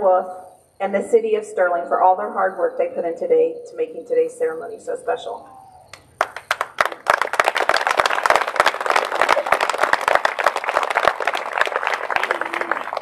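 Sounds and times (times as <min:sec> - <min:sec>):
audience applauding: 0:06.2 - 0:13.0.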